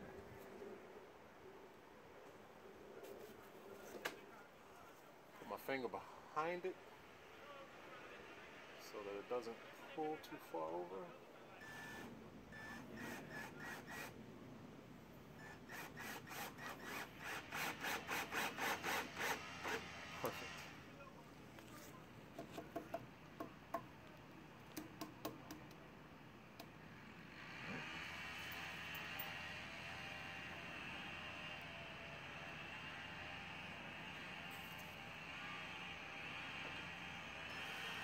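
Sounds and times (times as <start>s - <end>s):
cordless drill driving screw: 11.7s - 14.2s, 15.4s - 20.7s
scattered clicks and taps: 22.4s - 25.8s.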